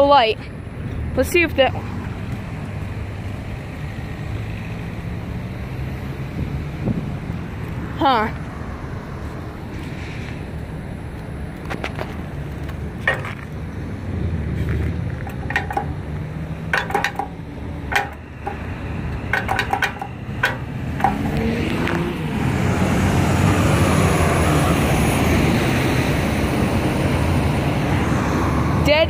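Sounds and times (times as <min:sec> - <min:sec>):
vehicle driving past: 0:20.1 - 0:28.8.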